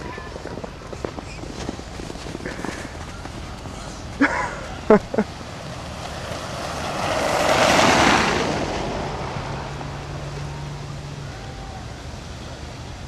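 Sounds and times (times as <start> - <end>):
car tyres swishing through snow: 0.1 - 10.5.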